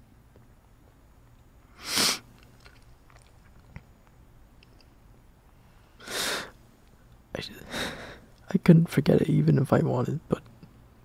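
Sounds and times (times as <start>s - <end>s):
man drawing a loud breath: 5.9s - 6.6s.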